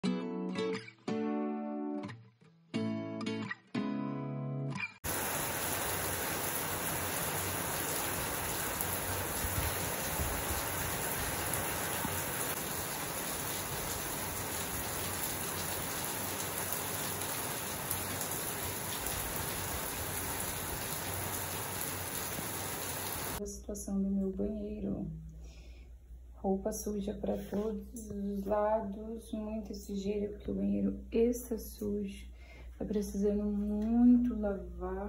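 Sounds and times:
rain pattering on plants: 5.1 - 23.4.

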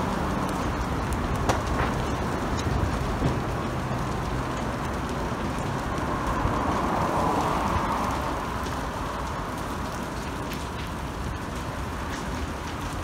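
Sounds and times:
fire crackling: 0.0 - 13.0
car passing: 1.6 - 10.3.

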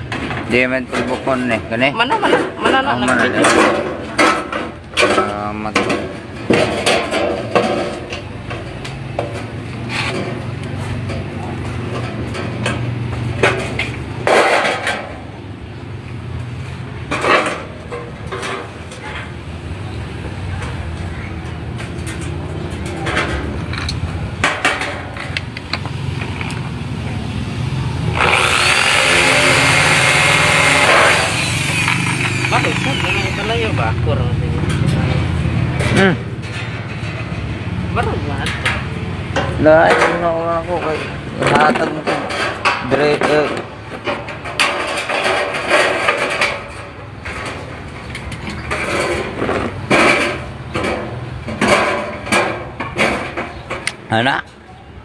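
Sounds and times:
metal knocks and clatters: 0.0 - 15.3, 17.0 - 19.6, 20.2 - 26.6, 34.6 - 54.1
electric drill drilling steel: 28.1 - 33.7.

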